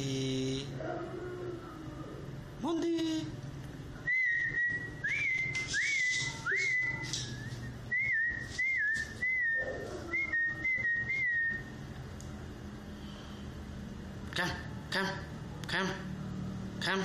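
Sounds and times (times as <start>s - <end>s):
person whistling: 4.1s - 11.7s.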